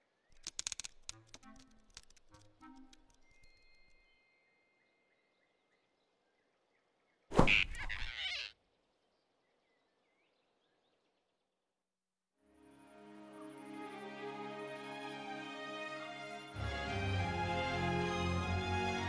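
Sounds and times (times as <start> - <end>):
faint forest ambience: 0.0 - 11.9
cartoon whoosh and scuffle: 7.3 - 8.4.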